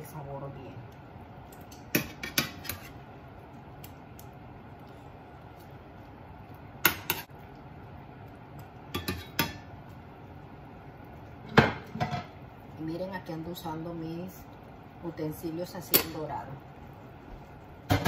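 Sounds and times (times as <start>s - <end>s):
metal utensils clinking on pan: 8.9s - 9.6s, 15.9s - 16.2s.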